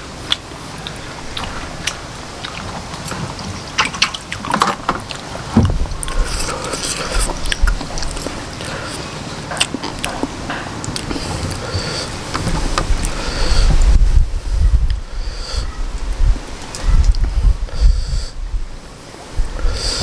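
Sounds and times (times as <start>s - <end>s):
person chewing: 0.0s - 14.0s
wet mouth clicks and smacks: 0.2s - 3.2s, 6.0s - 9.0s
low rumble: 5.3s - 20.0s.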